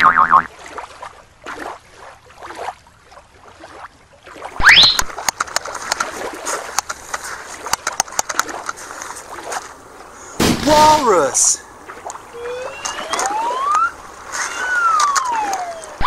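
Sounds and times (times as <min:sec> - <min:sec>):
water splashing: 0:00.0 - 0:16.0
rising whistle-like sweep: 0:04.6 - 0:05.0, 0:12.3 - 0:16.0.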